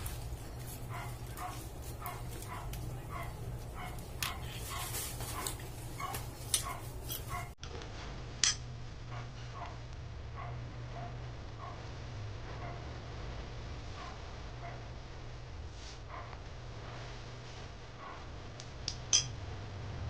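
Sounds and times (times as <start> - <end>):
wires clicking as handled: 0.0 - 7.8
low steady hum: 0.0 - 20.0.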